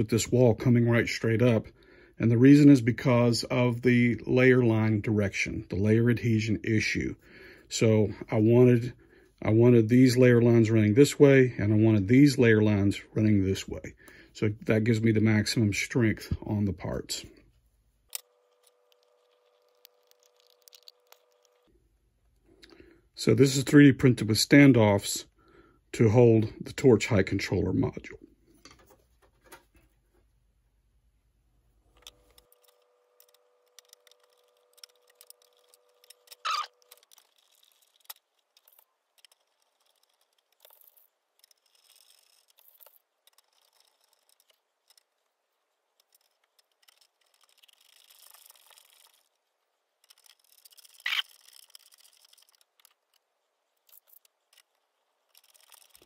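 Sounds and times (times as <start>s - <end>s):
small plastic parts rattling: 18.1s - 21.7s, 31.9s - 56.0s.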